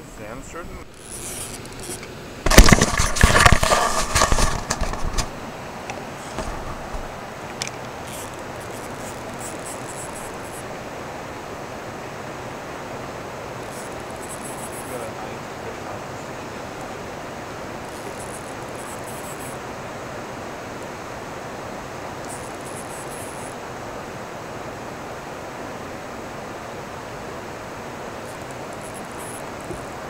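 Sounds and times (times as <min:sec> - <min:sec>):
steady rushing hiss: 0:00.0 - 0:30.0
camera handling knocks and scrapes: 0:01.3 - 0:05.4, 0:06.3 - 0:07.1.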